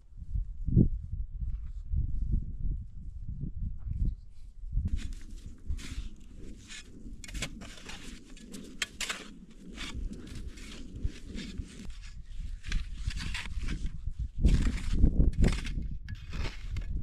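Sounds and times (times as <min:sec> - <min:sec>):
shovel scraping snow: 0:04.9 - 0:17.0.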